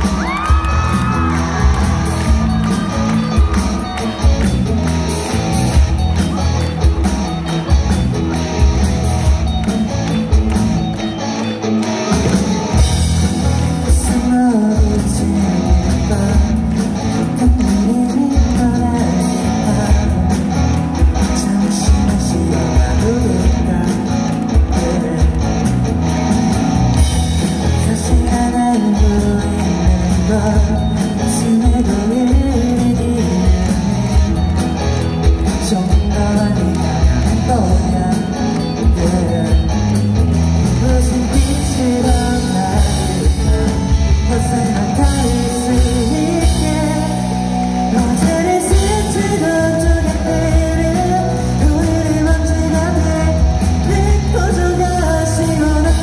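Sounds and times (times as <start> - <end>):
live rock band playing: 0.0 - 56.0
man singing: 13.2 - 26.1, 27.2 - 56.0.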